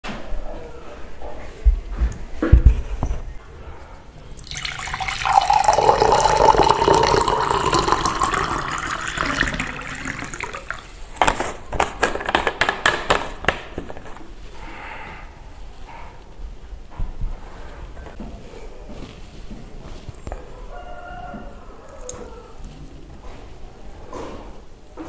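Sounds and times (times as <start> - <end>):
liquid pouring into container: 4.2 - 11.2.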